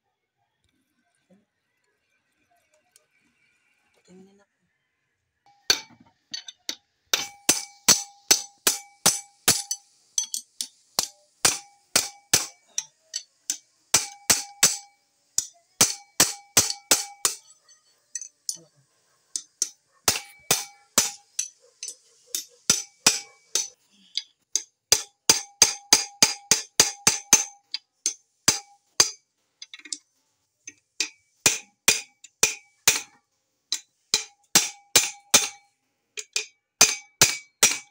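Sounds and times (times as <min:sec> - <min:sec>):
metal-on-metal strikes ringing: 0:05.5 - 0:18.7, 0:19.4 - 0:29.2.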